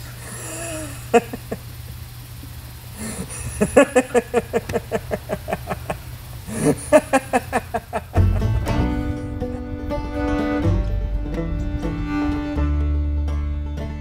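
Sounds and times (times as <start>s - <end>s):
low steady hum: 0.0s - 14.0s
person laughing hard: 0.2s - 1.7s, 3.0s - 8.6s.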